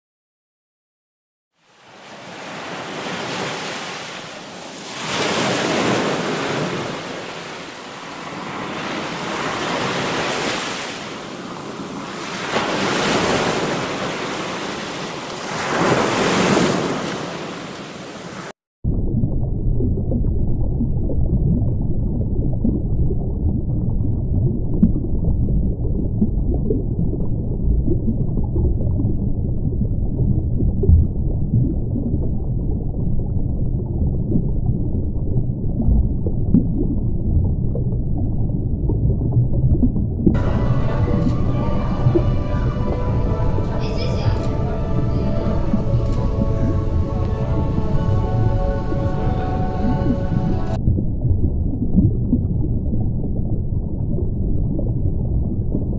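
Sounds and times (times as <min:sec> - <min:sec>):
ocean waves washing in: 0:01.6 - 0:18.6, 0:40.3 - 0:50.8
muffled underwater rumble: 0:18.9 - 0:55.9.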